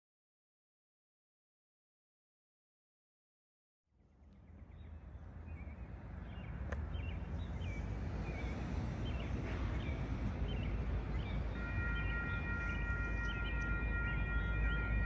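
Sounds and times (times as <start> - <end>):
birds chirping: 4.4 - 15.0
train horn: 11.5 - 15.0.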